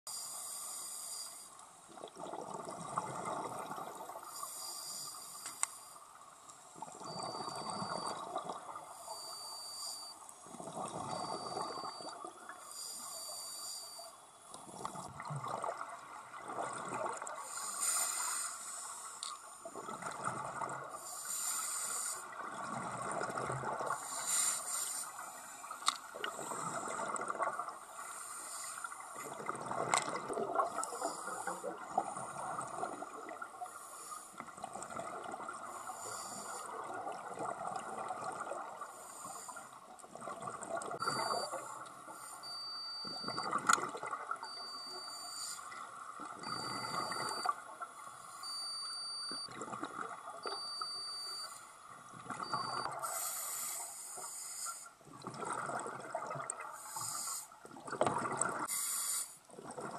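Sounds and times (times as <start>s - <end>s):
scuba regulator bubbles underwater: 1.8s - 5.4s, 6.2s - 13.8s, 14.4s - 58.9s, 59.5s - 59.9s
short high beep: 11.1s - 12.1s, 41.0s - 41.7s, 42.4s - 43.6s, 44.4s - 45.6s, 48.4s - 49.5s, 50.4s - 51.6s, 52.4s - 52.9s.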